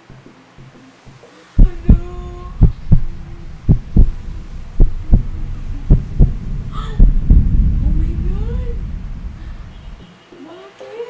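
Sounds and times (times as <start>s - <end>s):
heartbeat double thump: 1.6s - 10.0s.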